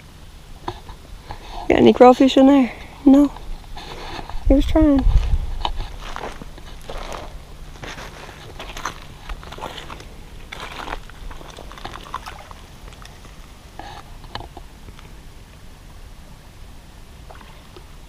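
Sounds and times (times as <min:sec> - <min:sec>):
footsteps crunching on loose rock: 0:05.0 - 0:13.0
water splashing: 0:08.8 - 0:14.0, 0:17.2 - 0:18.0.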